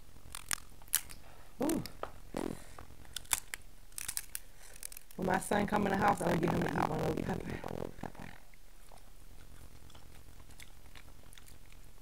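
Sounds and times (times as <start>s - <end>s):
crab shell cracking: 0.3s - 1.2s, 3.1s - 5.2s
chewing: 8.1s - 12.0s.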